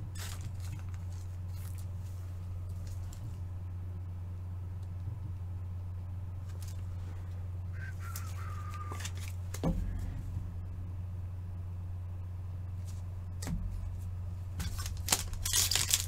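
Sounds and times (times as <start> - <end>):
steady low hum: 0.0 - 16.0
trading cards handling: 8.1 - 9.6, 14.6 - 16.0.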